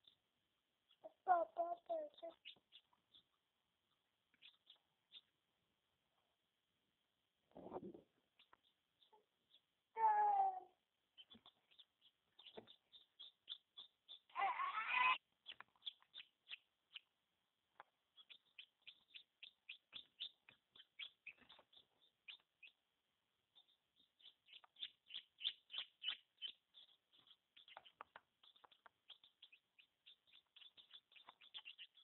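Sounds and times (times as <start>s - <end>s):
chick peeping: 0.9s - 3.4s, 4.0s - 5.3s, 11.2s - 17.1s, 18.1s - 22.8s, 23.6s - 32.0s.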